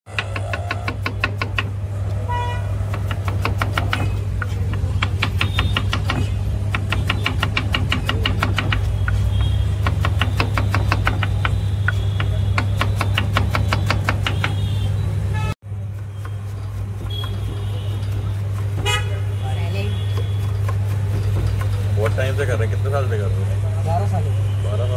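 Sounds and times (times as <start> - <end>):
knife chopping on a board: 0.1 - 1.8, 2.9 - 14.6, 20.1 - 22.2.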